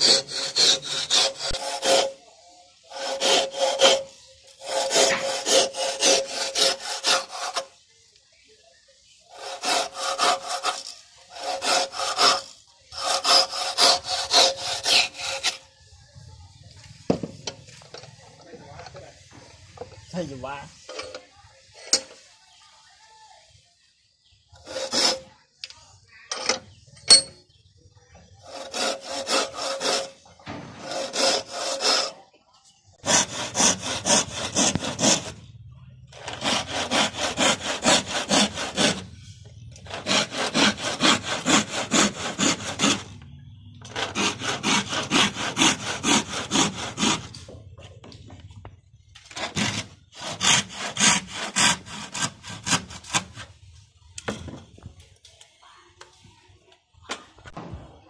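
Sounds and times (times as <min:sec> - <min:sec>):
hand saw cutting wood: 0:00.0 - 0:02.2, 0:02.9 - 0:07.8, 0:09.3 - 0:15.6, 0:24.6 - 0:25.4, 0:28.4 - 0:32.2, 0:33.0 - 0:35.4, 0:36.1 - 0:39.2, 0:39.8 - 0:47.5, 0:49.2 - 0:53.6.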